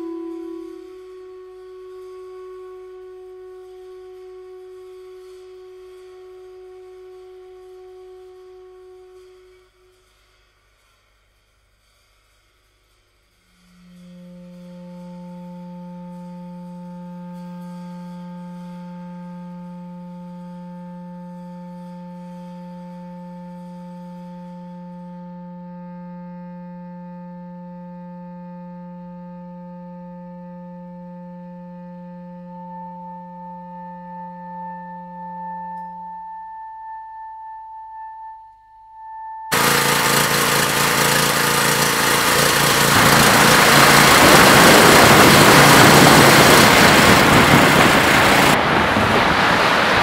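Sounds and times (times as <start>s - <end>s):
low musical tone with overtones: 13.5s - 48.6s
loud rushing noise: 39.5s - 50.0s.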